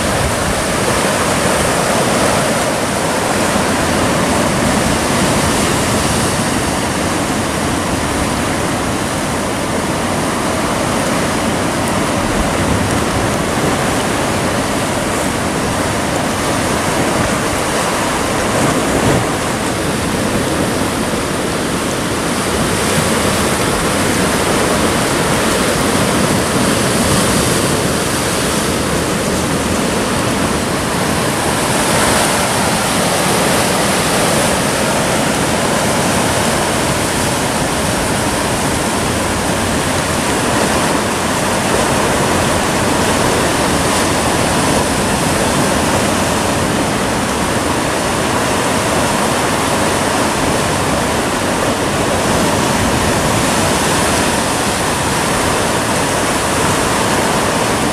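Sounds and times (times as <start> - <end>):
surf breaking on rocks: 0.0 - 57.9.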